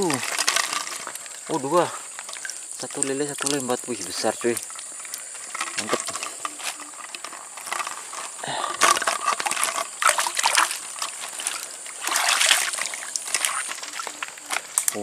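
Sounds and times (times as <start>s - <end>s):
stream water splashing: 0.0s - 15.0s.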